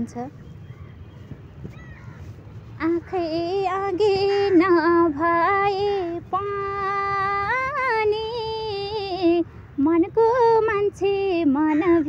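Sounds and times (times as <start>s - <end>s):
woman singing unaccompanied: 2.8s - 12.0s.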